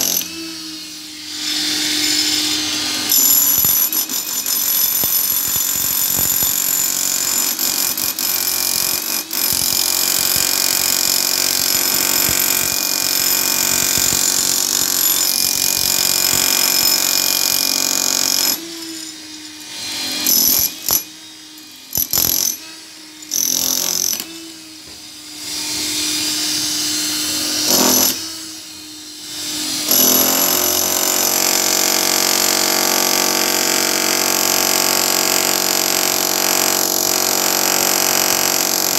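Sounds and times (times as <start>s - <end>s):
demolition hammer chiselling concrete: 0.0s - 0.5s, 3.0s - 19.0s, 20.0s - 21.2s, 21.9s - 22.6s, 23.3s - 24.5s, 26.9s - 28.5s, 29.4s - 38.9s.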